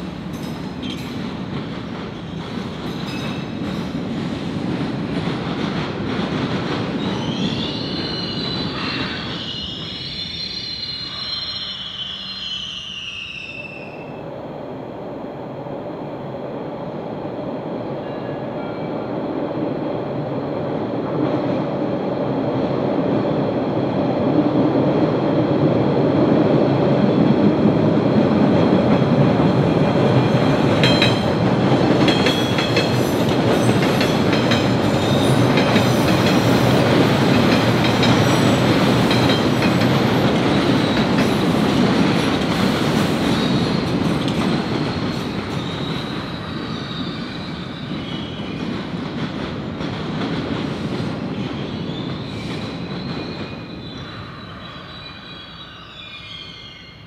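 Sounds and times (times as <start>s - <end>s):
subway train rumbling on rails: 0.0s - 57.0s
high wheel squeal: 7.1s - 14.2s, 44.6s - 48.6s.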